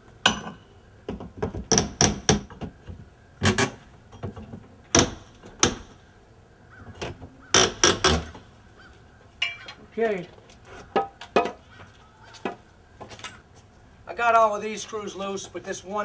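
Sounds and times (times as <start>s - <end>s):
hammer claw prying wood: 1.6s - 2.5s, 4.9s - 5.9s, 7.5s - 8.3s.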